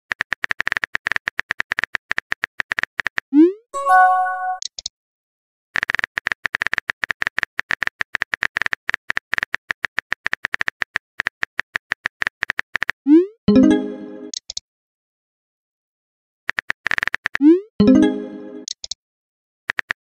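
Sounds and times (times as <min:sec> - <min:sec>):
message chime: 0:03.8 - 0:04.6, 0:13.5 - 0:14.3, 0:17.8 - 0:18.6.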